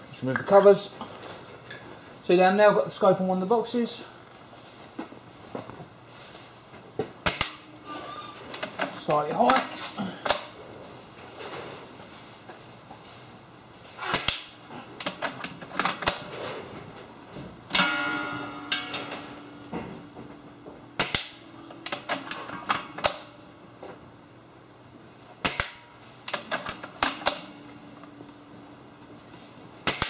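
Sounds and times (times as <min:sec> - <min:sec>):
brief metallic ringing: 0:17.7 - 0:19.6.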